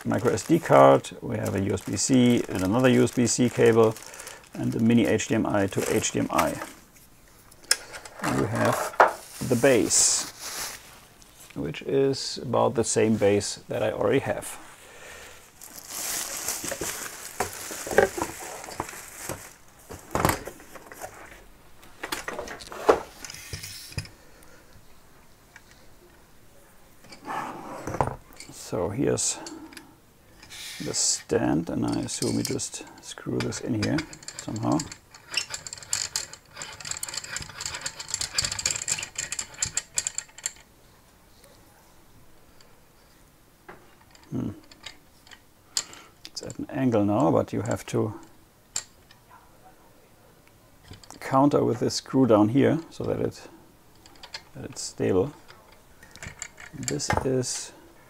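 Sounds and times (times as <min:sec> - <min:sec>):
plastic wrap rustling: 0:00.0 - 0:07.0, 0:08.2 - 0:11.5, 0:14.4 - 0:21.5
small clicks and rattles: 0:31.7 - 0:40.7, 0:53.9 - 0:57.2
hard parts knocking and clattering: 0:33.4 - 0:40.6, 0:55.4 - 0:57.5.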